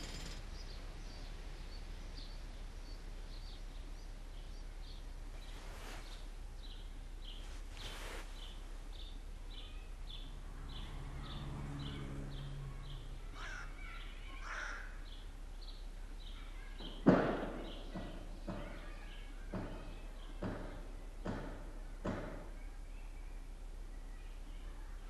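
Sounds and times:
low engine hum: 0.0s - 17.0s
city background noise: 0.0s - 25.0s.

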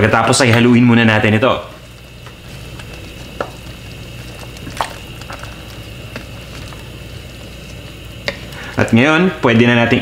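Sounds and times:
broth simmering: 0.0s - 10.0s
steady low hum: 0.0s - 10.0s
spatula stirring vegetables in pot: 1.8s - 9.0s.

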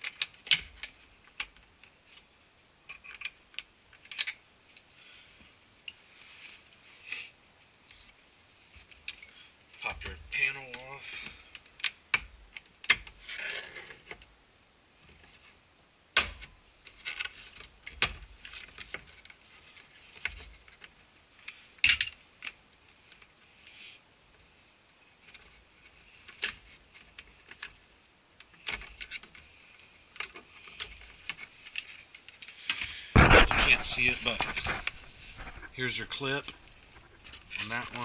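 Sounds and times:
plastic rubbing and scraping: 33.2s - 38.0s.

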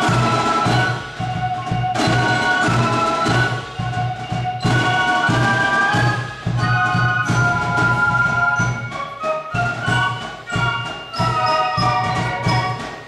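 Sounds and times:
flutes playing melody: 0.0s - 13.0s
regular drum beat: 0.0s - 13.0s.

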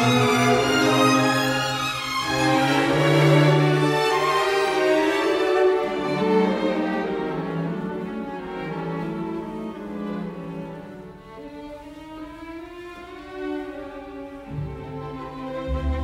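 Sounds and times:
bowed strings holding slow notes: 14.5s - 16.0s.

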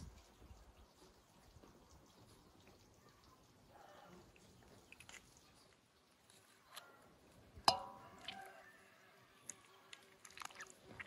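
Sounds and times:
wet squishing of fish gutting: 4.6s - 7.0s, 7.8s - 11.0s
sharp knock with metallic ring: 7.7s - 8.0s.

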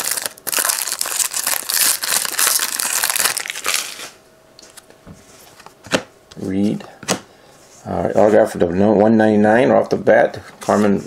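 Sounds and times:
foil wrapper crinkling: 0.0s - 4.2s.

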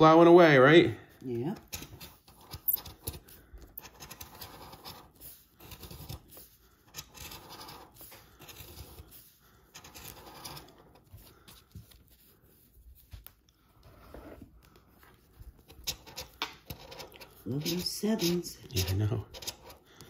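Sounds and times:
plastic tool scraping scratch ticket: 1.3s - 12.5s, 15.5s - 20.0s.

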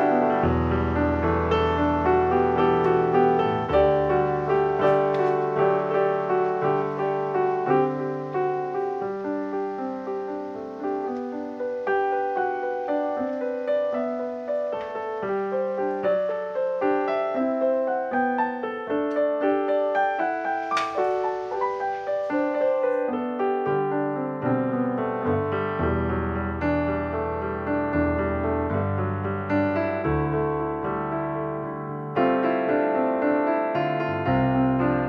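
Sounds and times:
piano music: 0.0s - 35.0s.

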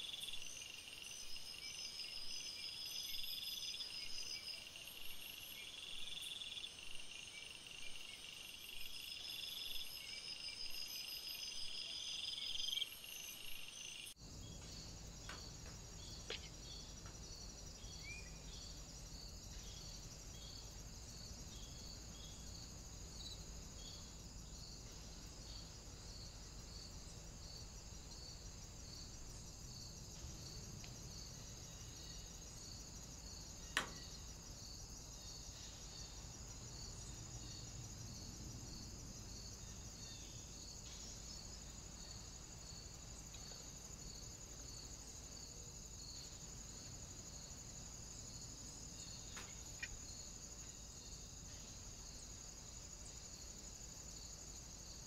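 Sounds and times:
crickets chirping: 0.0s - 55.0s.

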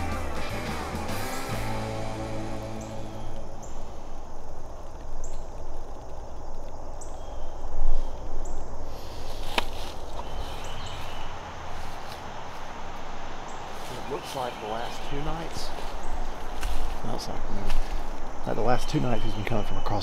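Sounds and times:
background music: 0.0s - 3.6s
rustling leaves: 0.0s - 20.0s
footsteps in leaf litter: 9.0s - 18.2s.

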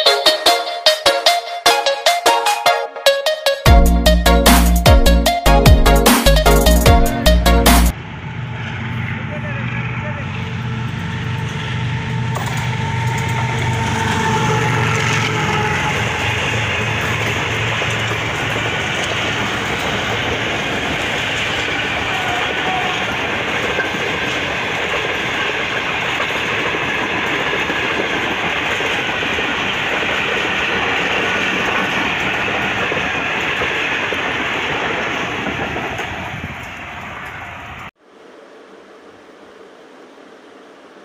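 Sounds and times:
train wheels rumbling on track: 7.9s - 37.9s.

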